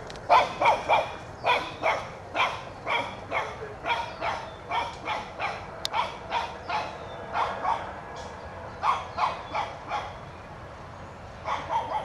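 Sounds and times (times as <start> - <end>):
small dog yapping: 0.3 - 7.9, 11.4 - 12.0.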